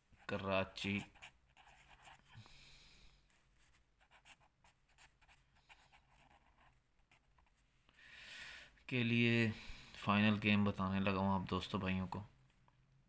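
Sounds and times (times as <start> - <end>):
pen scratching on paper: 0.2 - 2.4, 3.6 - 7.7.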